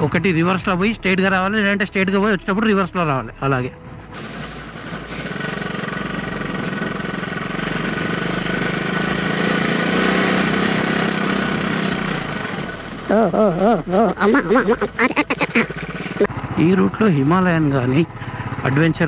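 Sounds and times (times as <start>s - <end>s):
motorcycle engine running: 4.0s - 19.0s
man talking: 16.5s - 19.0s.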